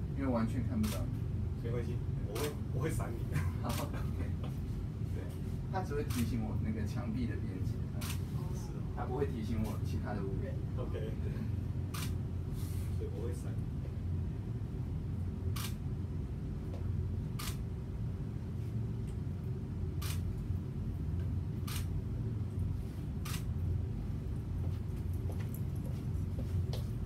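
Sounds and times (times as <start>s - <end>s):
low hum: 0.0s - 27.0s
camera shutter firing: 11.9s - 12.2s, 15.6s - 15.8s, 17.4s - 17.6s, 20.0s - 20.3s, 21.7s - 21.9s, 23.2s - 23.5s.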